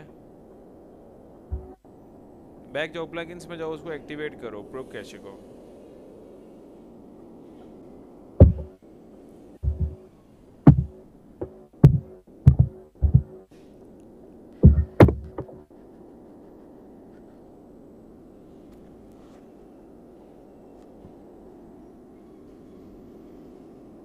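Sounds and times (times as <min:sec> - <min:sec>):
steady low hum: 0:00.0 - 0:24.0
heavy low thumps: 0:01.5 - 0:01.8, 0:08.4 - 0:08.7, 0:09.6 - 0:10.0, 0:10.6 - 0:13.4, 0:14.6 - 0:15.7.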